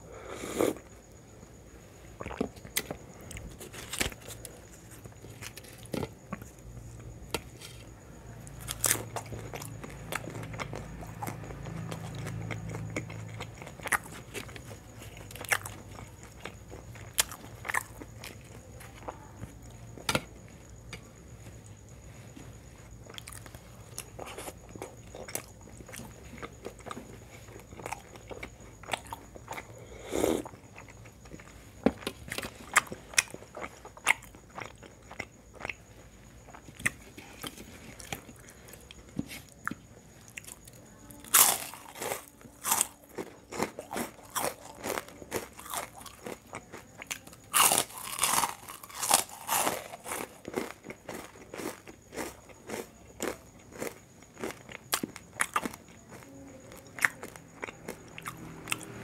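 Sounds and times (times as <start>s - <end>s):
crunching crisp fried food: 2.0s - 59.0s
person chewing and biting: 41.3s - 42.9s, 43.5s - 46.4s, 47.0s - 55.8s.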